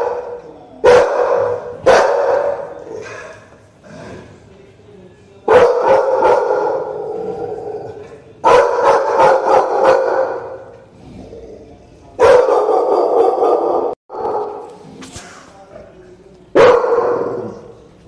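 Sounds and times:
dogs barking deeply: 0:00.0 - 0:04.0, 0:05.5 - 0:11.4, 0:12.2 - 0:14.7, 0:16.5 - 0:17.8.

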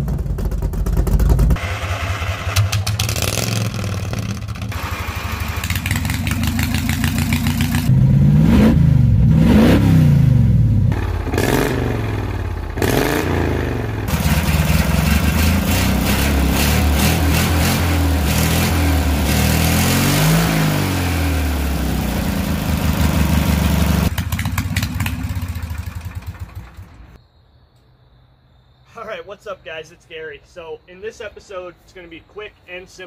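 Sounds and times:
mower engine putter: 0:00.0 - 0:07.9
car engine revving: 0:00.0 - 0:27.1.

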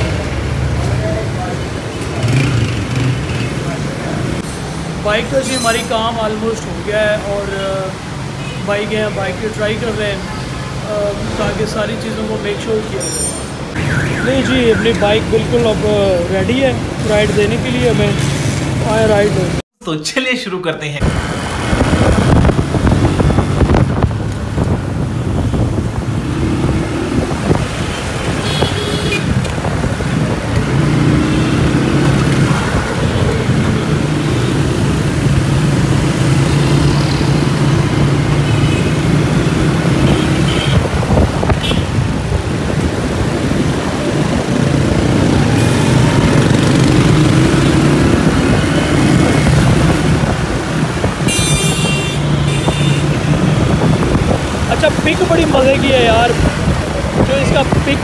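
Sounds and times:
motorcycle engine revving: 0:00.0 - 0:04.4, 0:21.2 - 0:57.9
traffic: 0:00.0 - 0:19.8, 0:21.0 - 0:58.0.

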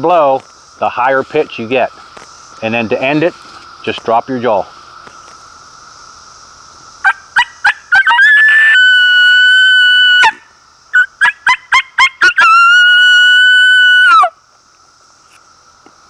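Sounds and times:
coyote call yips and howls: 0:07.0 - 0:14.3.

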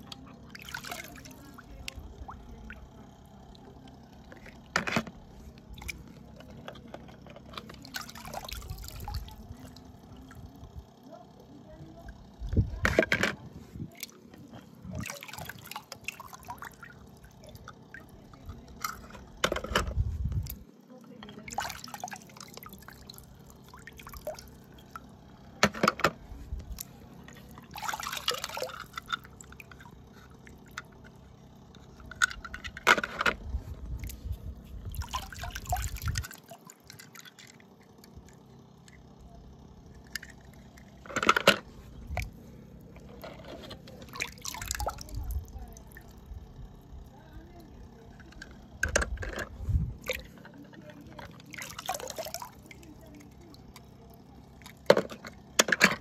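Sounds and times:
water splashing and dripping: 0:21.4 - 0:24.5, 0:27.7 - 0:28.8, 0:44.1 - 0:46.0, 0:51.5 - 0:53.5.

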